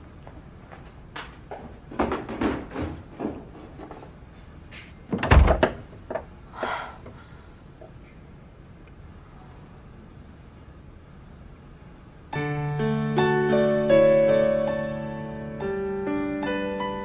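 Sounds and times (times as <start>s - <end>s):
footsteps: 0.1s - 5.0s
wooden door thudding shut: 5.1s - 5.8s.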